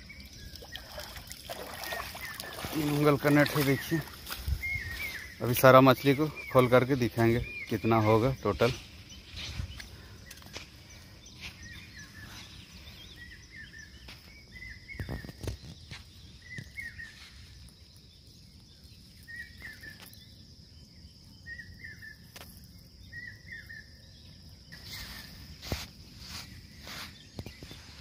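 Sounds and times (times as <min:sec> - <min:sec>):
bird chirping: 0:00.0 - 0:28.0
high-pitched hiss: 0:24.7 - 0:28.0.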